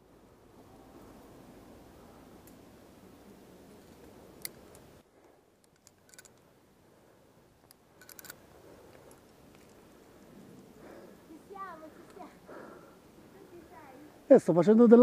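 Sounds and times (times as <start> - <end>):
carabiners clicking on metal: 3.8 - 4.9, 5.6 - 6.5, 7.6 - 9.8.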